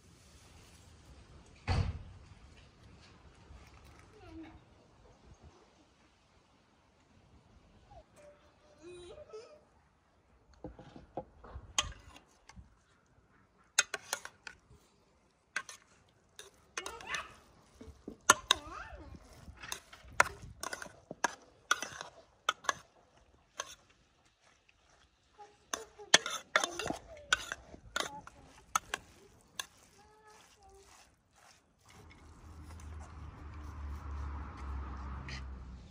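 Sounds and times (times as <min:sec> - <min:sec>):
fork clinking and scraping in pot: 0:11.8 - 0:12.6, 0:13.8 - 0:14.6, 0:15.6 - 0:23.9, 0:25.6 - 0:34.0.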